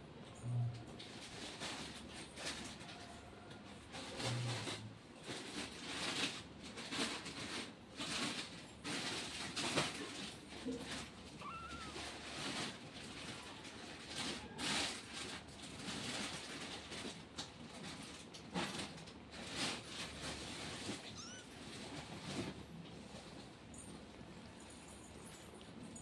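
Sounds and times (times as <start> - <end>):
kitten rustling and licking: 0.8 - 26.0
faint kitten mew: 11.4 - 12.2, 21.1 - 21.5.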